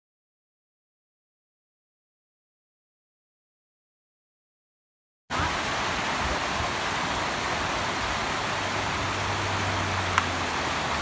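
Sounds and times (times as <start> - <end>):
creek rushing over rocks: 5.3 - 11.0.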